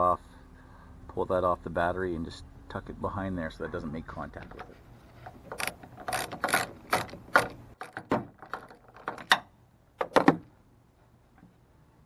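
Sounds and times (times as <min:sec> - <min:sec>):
socket ratchet clicking: 0:05.3 - 0:09.4.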